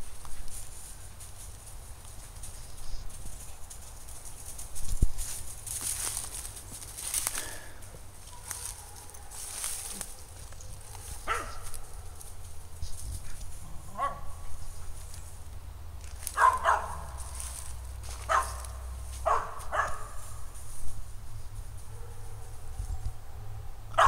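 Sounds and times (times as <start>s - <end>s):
dog barking: 8.3s - 12.2s, 13.9s - 14.4s, 16.4s - 17.2s, 18.2s - 20.2s, 21.9s - 22.5s, 23.2s - 24.0s.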